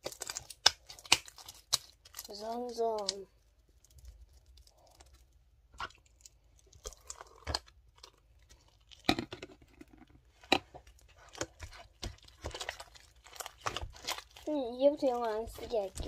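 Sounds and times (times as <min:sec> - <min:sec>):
slime squishing: 0:00.0 - 0:16.0.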